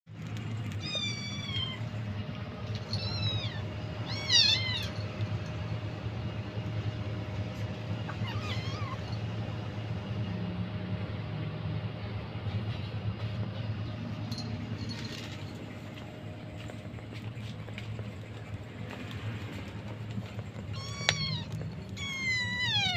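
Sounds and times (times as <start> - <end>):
steady low hum: 0.1 - 22.9
kitten meowing: 0.8 - 1.8, 3.0 - 5.0, 8.1 - 9.0, 20.7 - 22.9.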